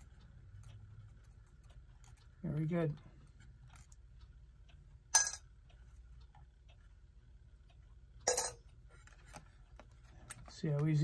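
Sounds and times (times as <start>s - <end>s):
sharp metallic clink: 5.2s - 5.5s, 8.3s - 8.6s.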